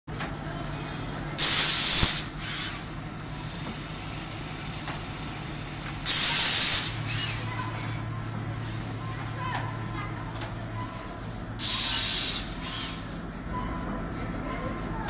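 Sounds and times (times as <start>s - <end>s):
packing machine humming: 0.1s - 14.4s
sharp machine click: 1.4s - 2.7s
compressed air hiss: 1.4s - 2.8s, 6.0s - 7.2s, 11.6s - 12.7s.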